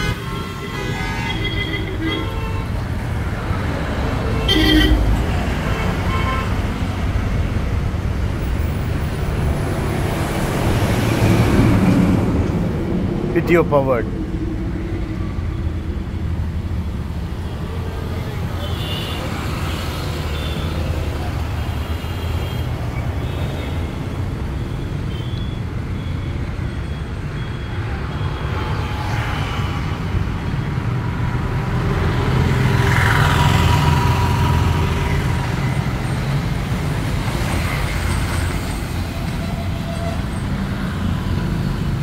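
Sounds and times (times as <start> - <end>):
passing road vehicle: 0.0 - 18.6, 26.8 - 42.0.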